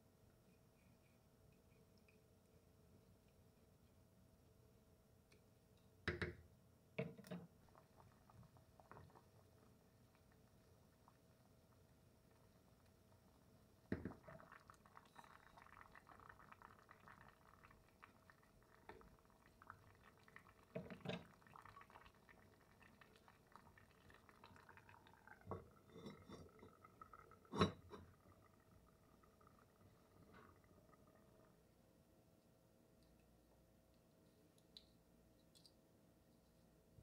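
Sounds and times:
liquid sloshing and bubbling: 0:07.2 - 0:32.0.

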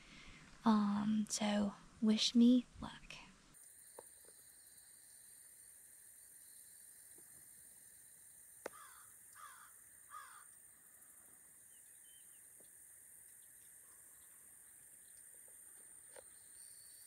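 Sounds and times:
faint high insect hum: 0:00.2 - 0:17.0
bird harsh calls: 0:08.7 - 0:10.5.

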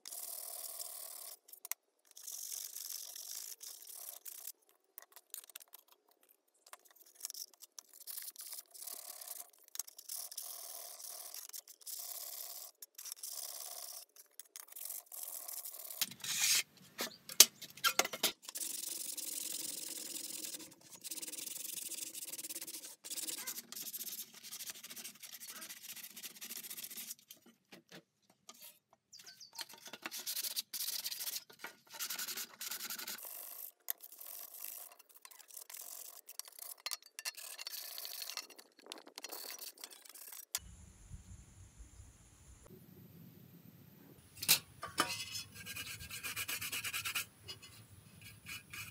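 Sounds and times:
sandpaper rubbing rusted metal: 0:14.8 - 0:16.7, 0:17.9 - 0:27.3, 0:29.5 - 0:38.4, 0:45.1 - 0:48.9.

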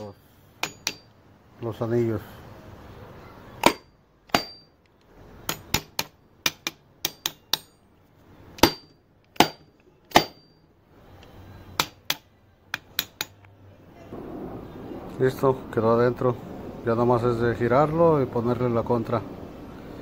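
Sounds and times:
sharp metallic taps on piston: 0:00.0 - 0:01.1.

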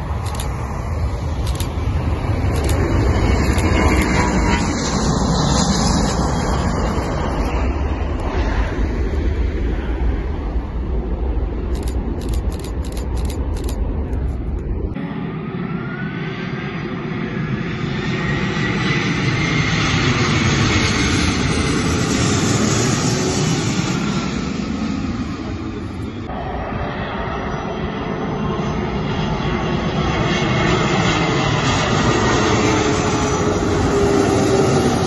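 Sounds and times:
jet engine whine: 0:00.0 - 0:35.0
jet engines roaring: 0:00.0 - 0:35.0.

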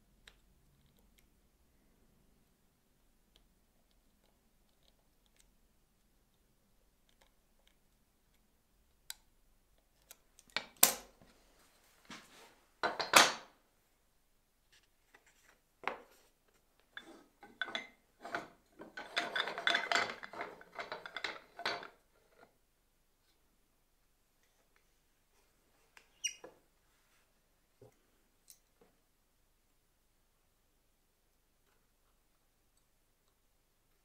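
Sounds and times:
wood scraping: 0:14.7 - 0:22.5.

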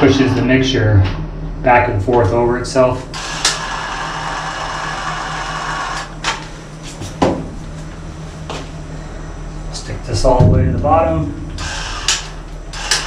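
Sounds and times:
caulking gun motor whine: 0:03.1 - 0:06.4, 0:11.6 - 0:13.0.

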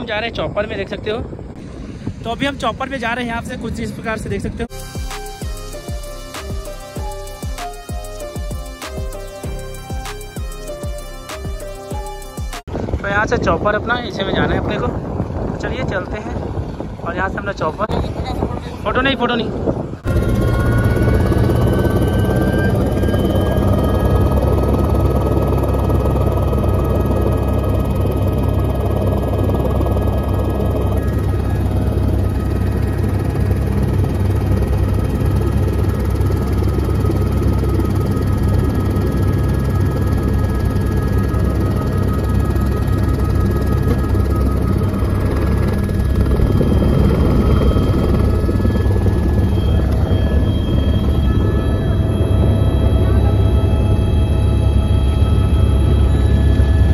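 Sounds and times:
helicopter rotor and engine rumble: 0:00.0 - 0:56.9
high turbine whine: 0:00.0 - 0:56.9.

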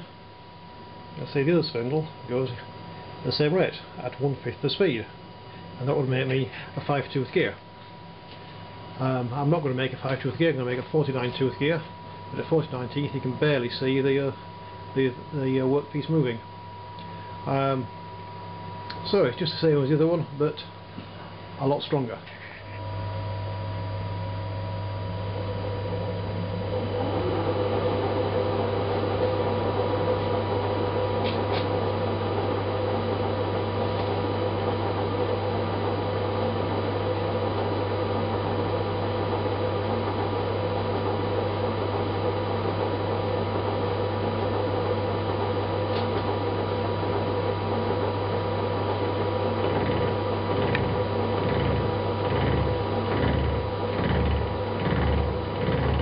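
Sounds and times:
milling machine cutting: 0:25.4 - 0:56.0.

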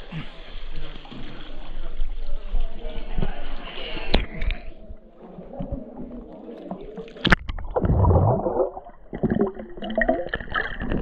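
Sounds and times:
muffled underwater bubbling: 0:01.1 - 0:11.0.

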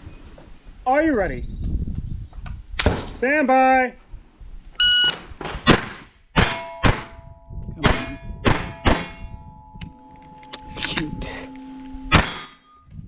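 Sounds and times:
pistol shots: 0:05.6 - 0:07.2
steel plates ringing: 0:06.4 - 0:13.0.

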